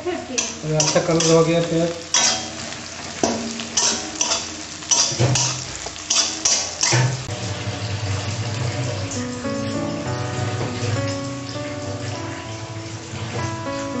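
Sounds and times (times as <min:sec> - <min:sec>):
spatula scraping frying onions: 0:00.3 - 0:14.0
background music: 0:07.3 - 0:14.0.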